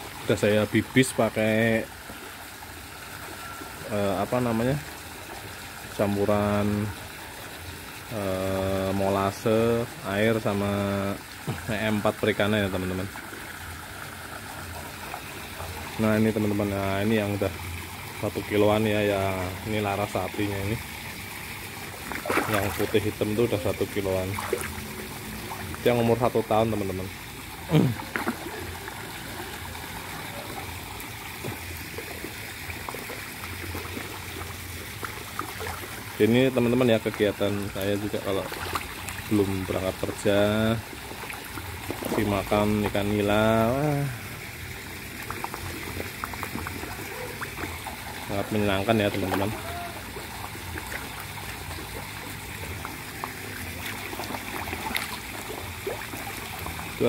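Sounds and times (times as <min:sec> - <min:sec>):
water trickling: 0:00.0 - 0:57.0
fish splashing at surface: 0:20.4 - 0:36.2, 0:37.6 - 0:40.3, 0:44.6 - 0:57.0.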